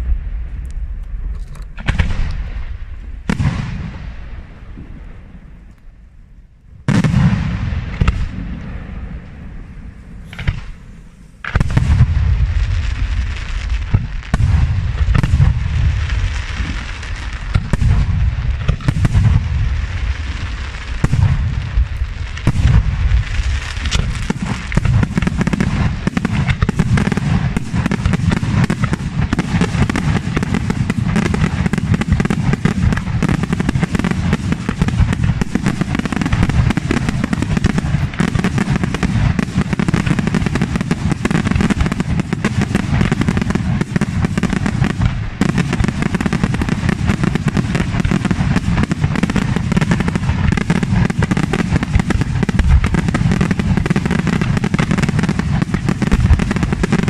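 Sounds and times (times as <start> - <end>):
fireworks booms: 0.0 - 5.9, 6.8 - 57.0
fireworks crackle: 0.0 - 5.9, 6.8 - 57.0.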